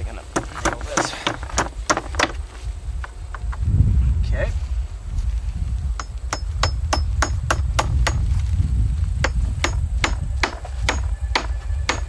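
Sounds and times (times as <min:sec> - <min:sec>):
hammer striking nail into wood: 0:00.3 - 0:02.4, 0:06.0 - 0:08.2, 0:09.2 - 0:12.0.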